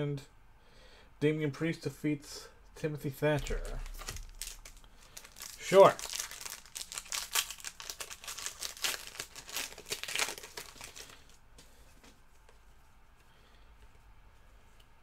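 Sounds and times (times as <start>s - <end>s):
plastic wrapper crinkling and tearing: 3.4s - 11.4s.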